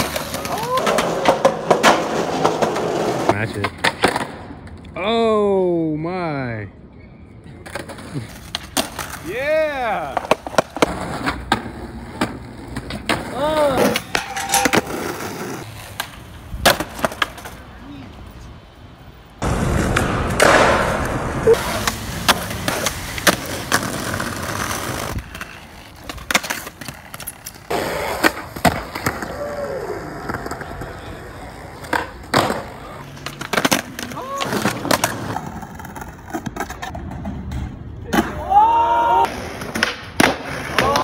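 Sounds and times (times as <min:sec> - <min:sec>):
skateboard clacks: 0:00.0 - 0:04.8, 0:19.4 - 0:38.4, 0:39.2 - 0:41.0
skateboards rolling: 0:00.0 - 0:05.3, 0:07.0 - 0:41.0
rough rolling rumble: 0:19.4 - 0:25.6.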